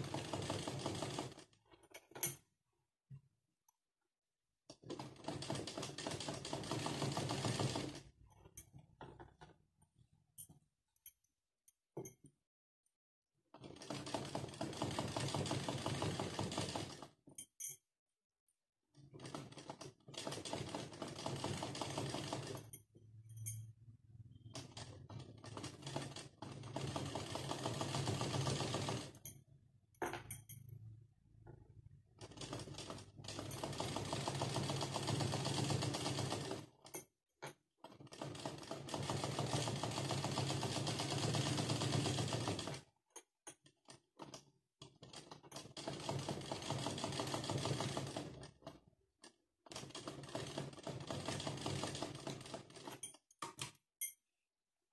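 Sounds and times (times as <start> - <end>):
sewing machine stitching: 0.0 - 1.9, 4.7 - 9.6, 13.5 - 17.2, 18.9 - 22.7, 24.2 - 29.3, 31.7 - 36.9, 37.8 - 42.9, 43.8 - 53.7.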